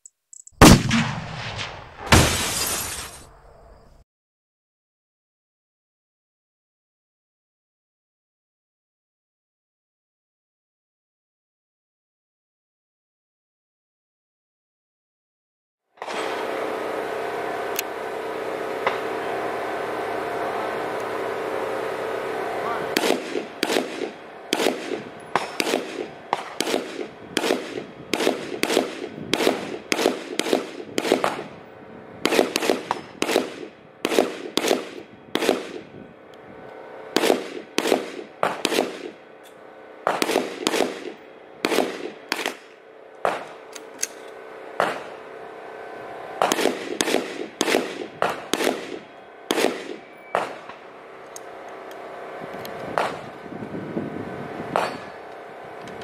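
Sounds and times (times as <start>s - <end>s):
rifle firing single shots: 0.6s - 2.2s, 23.0s - 31.4s, 32.3s - 35.8s, 37.2s - 39.2s, 40.1s - 42.6s.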